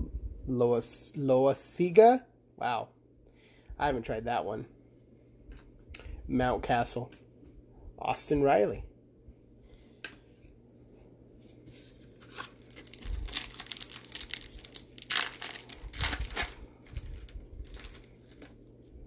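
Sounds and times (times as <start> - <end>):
foil wrapper tearing and crinkling: 12.1 - 18.6.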